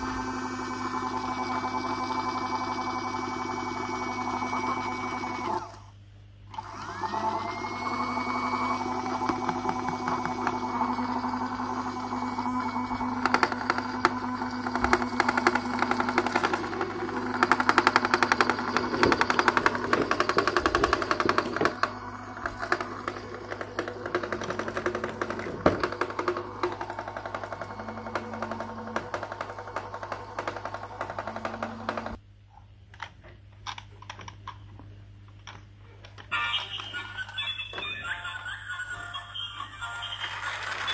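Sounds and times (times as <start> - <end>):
toy appliance clattering: 13.1 - 32.1, 40.0 - 40.9
music: 36.4 - 40.9.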